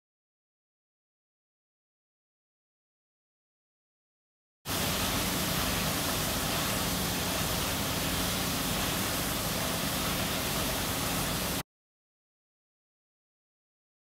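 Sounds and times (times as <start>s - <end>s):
water jetting into water: 4.7s - 11.6s.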